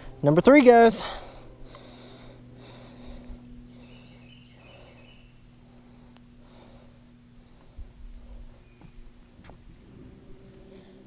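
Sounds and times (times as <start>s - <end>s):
faint insect drone: 0.0s - 11.0s
low steady hum: 0.0s - 11.0s
faint bird chirps: 3.6s - 6.1s, 8.3s - 9.3s.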